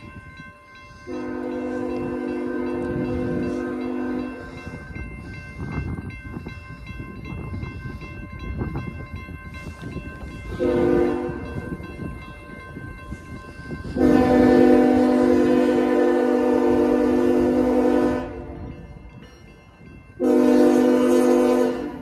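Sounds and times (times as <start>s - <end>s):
locomotive engines and wheels rumbling: 0.0s - 22.0s
train air horn blasts: 1.1s - 4.6s, 10.5s - 11.6s, 13.9s - 18.7s, 20.2s - 22.0s.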